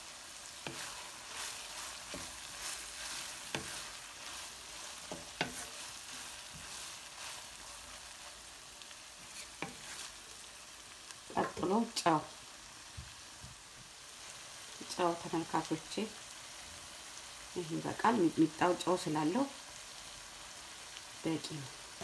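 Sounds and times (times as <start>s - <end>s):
meat sizzling in a pan: 0.0s - 22.0s
spoon knocking against pan: 5.1s - 5.6s.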